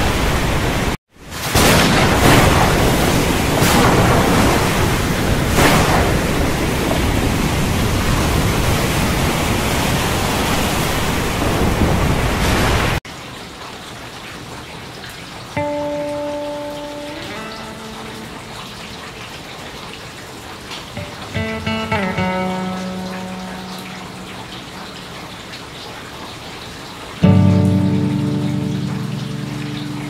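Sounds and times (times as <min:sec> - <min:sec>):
heavy rain: 0:00.0 - 0:30.0
sharp thunder cracks: 0:01.4 - 0:07.7.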